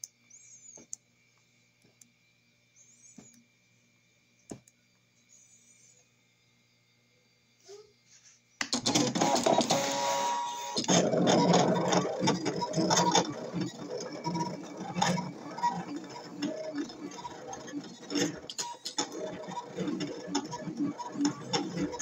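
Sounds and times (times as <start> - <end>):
stepper motors whirring and ticking: 8.8 - 22.0
motor whine: 9.0 - 22.0.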